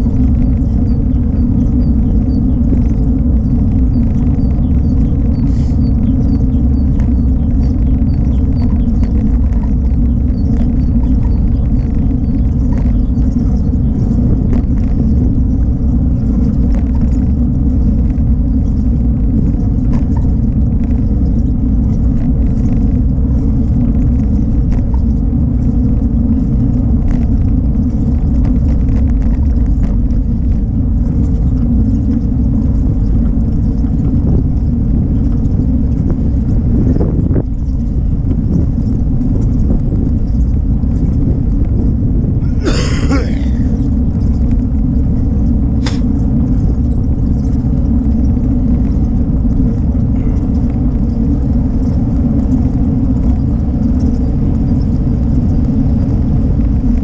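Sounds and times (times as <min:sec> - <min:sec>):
bike clicks and rattles: 0:00.0 - 0:57.0
wind buffeting microphone: 0:00.0 - 0:57.0.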